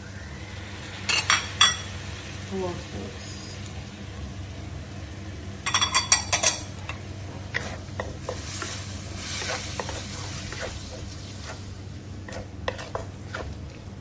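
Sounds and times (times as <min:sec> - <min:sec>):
light sizzle: 0:00.0 - 0:14.0
spatula scraping metal wok: 0:07.5 - 0:13.7.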